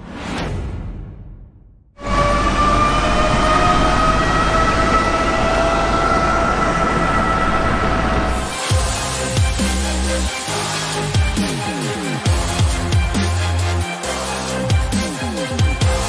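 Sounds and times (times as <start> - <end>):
electric car high whine: 2.0 - 8.6.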